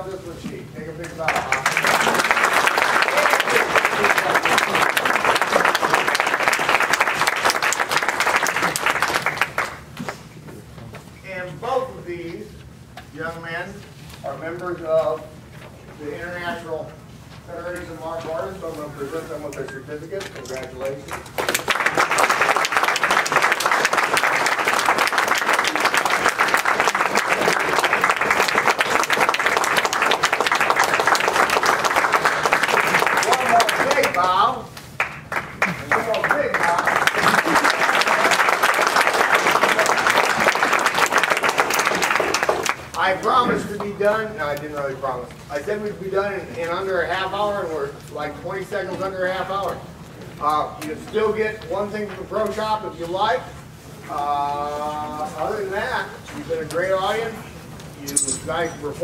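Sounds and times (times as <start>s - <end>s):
audience clapping: 1.0s - 10.2s, 20.8s - 43.9s.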